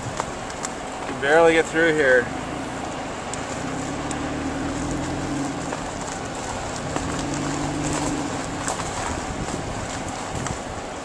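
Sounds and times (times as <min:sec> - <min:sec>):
small clicks and crackles: 0:00.0 - 0:01.2, 0:03.3 - 0:10.7
tyres on dirt road: 0:00.0 - 0:11.0
vehicle engine hum: 0:00.0 - 0:11.0.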